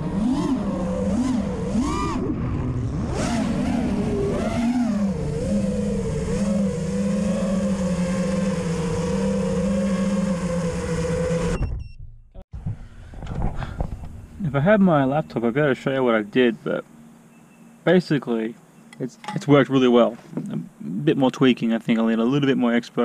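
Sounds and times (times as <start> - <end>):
drone motors whining: 0.0 - 11.8.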